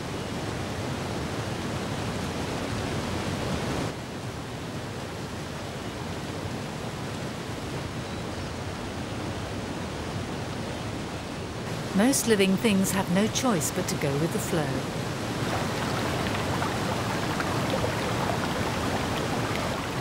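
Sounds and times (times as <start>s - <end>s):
churning white water: 11.6s - 20.0s
waterfall rushing: 13.2s - 20.0s.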